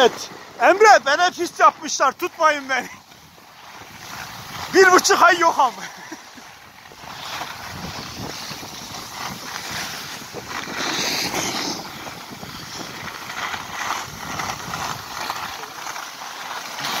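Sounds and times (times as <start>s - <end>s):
skis scraping over snow: 0.0s - 17.0s
wind buffeting microphone: 6.7s - 15.6s.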